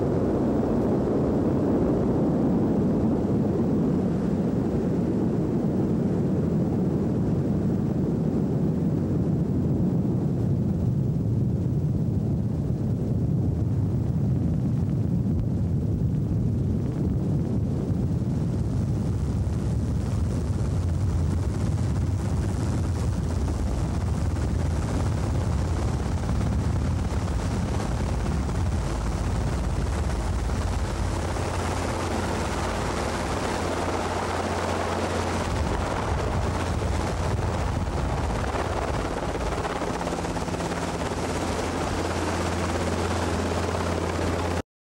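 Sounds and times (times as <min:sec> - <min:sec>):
helicopter engine and rotor drone: 0:18.7 - 0:44.6.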